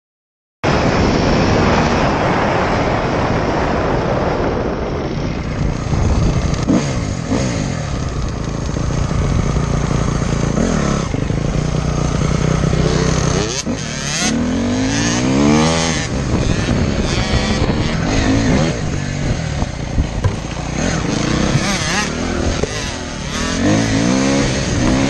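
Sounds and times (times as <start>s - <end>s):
dirt bike engines revving: 1.6s - 25.0s.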